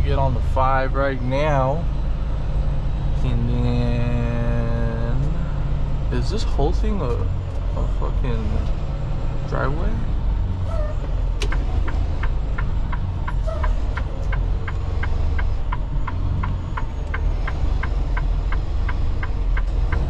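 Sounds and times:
road noise inside cab: 0:00.0 - 0:20.0
truck engine rumble: 0:00.0 - 0:20.0
turn signal clicking: 0:11.4 - 0:20.0.

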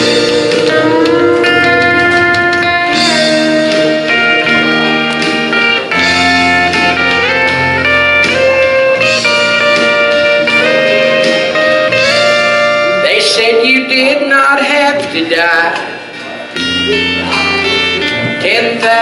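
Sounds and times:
backing chords: 0:00.0 - 0:19.0
sliding lead melody: 0:00.0 - 0:19.0.

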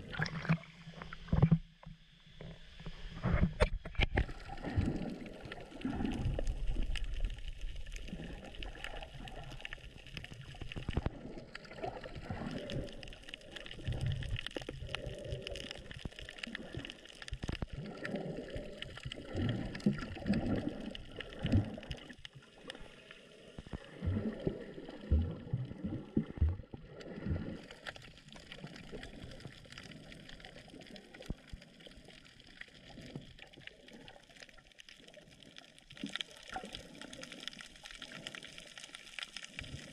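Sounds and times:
muffled water sloshing and gurgling: 0:00.0 - 0:39.9
low water swells: 0:04.2 - 0:34.2.

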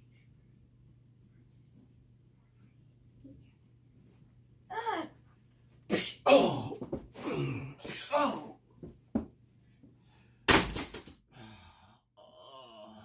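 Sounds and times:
shouts and grunts: 0:06.2 - 0:08.6.

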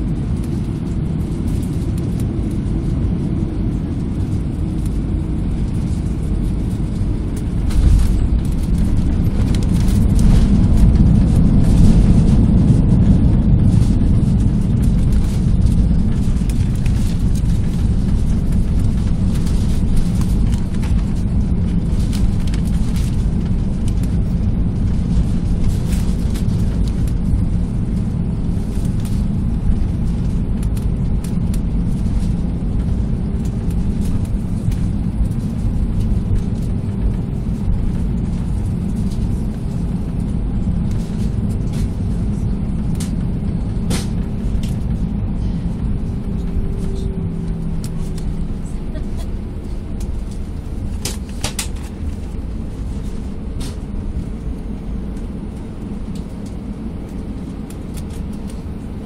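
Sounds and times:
aircraft cabin rumble: 0:00.0 - 0:59.0.

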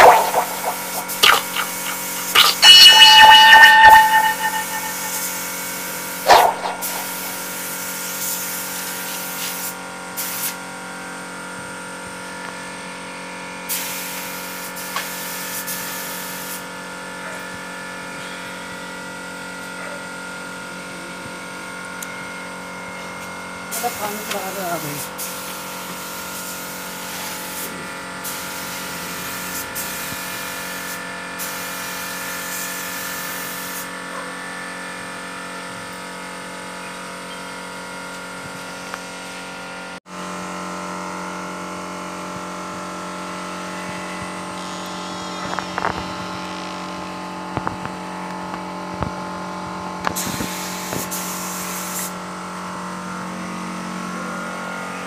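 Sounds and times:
spray gun hissing: 0:00.0 - 0:02.6
air compressor humming: 0:00.0 - 0:03.0.

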